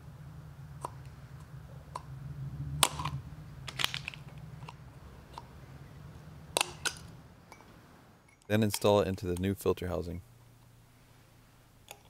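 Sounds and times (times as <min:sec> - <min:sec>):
low hum: 0:00.0 - 0:08.5.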